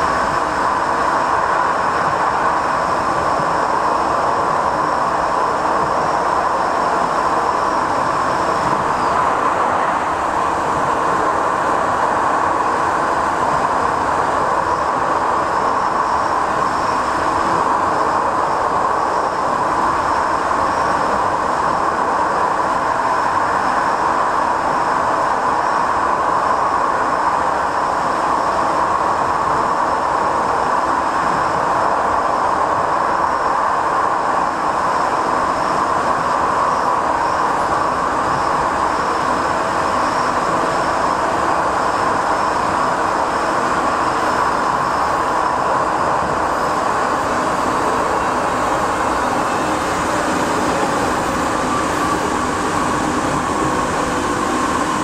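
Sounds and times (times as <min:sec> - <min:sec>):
faint high whine: 0:00.0 - 0:55.0
train wheels rolling on rail: 0:00.0 - 0:55.0.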